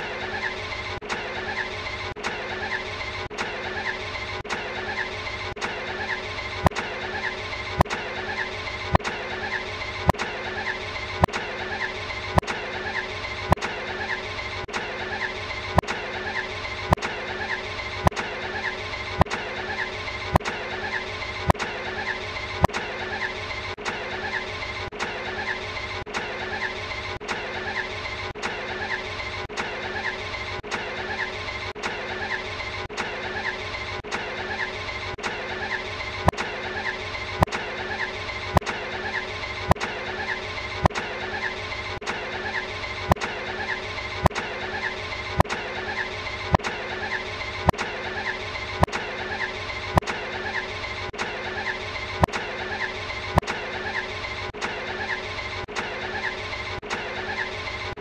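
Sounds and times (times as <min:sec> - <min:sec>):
sharp click: 0:06.6 - 0:06.9, 0:12.4 - 0:12.6, 0:15.8 - 0:16.1, 0:21.5 - 0:21.8, 0:25.0 - 0:25.2, 0:28.4 - 0:28.6, 0:30.7 - 0:30.9, 0:34.1 - 0:34.3, 0:35.2 - 0:35.4, 0:40.8 - 0:41.1, 0:42.0 - 0:42.3, 0:50.0 - 0:50.2, 0:51.2 - 0:51.4, 0:53.4 - 0:53.7, 0:54.6 - 0:54.8, 0:55.7 - 0:56.0.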